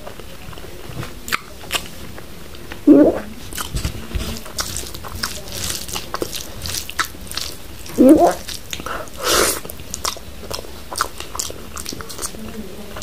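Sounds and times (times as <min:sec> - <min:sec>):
wet chewing and lip smacking: 0:01.3 - 0:12.6
loud mouth sounds: 0:02.8 - 0:04.7, 0:07.9 - 0:10.2.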